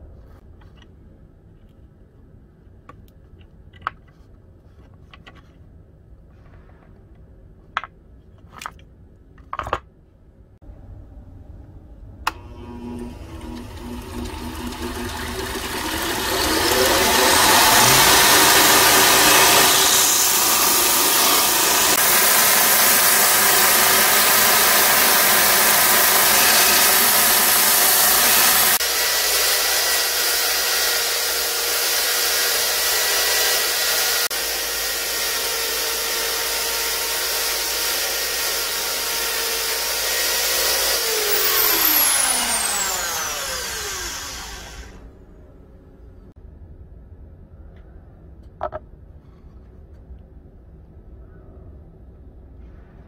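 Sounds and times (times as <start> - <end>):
belt grinder grinding steel: 12.3 - 45.0
sanding wheel motor whine: 12.3 - 45.1.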